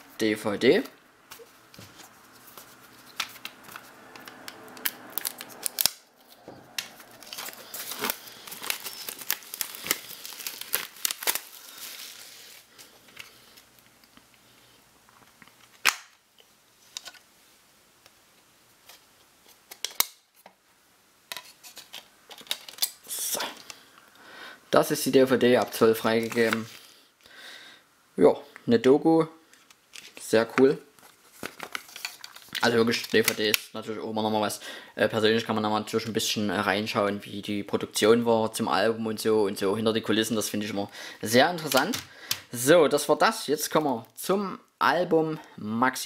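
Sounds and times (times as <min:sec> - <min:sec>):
shrink-wrap crinkling and scratching: 0:02.1 - 0:14.2, 0:31.0 - 0:33.6.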